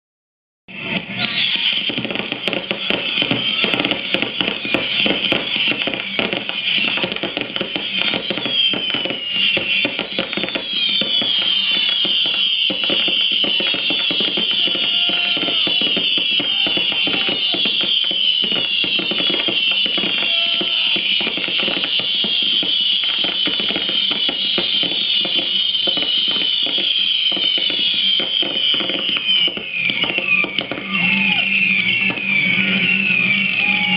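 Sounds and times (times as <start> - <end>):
fireworks bangs: 0.7 - 33.9
fireworks whistling: 0.7 - 33.9.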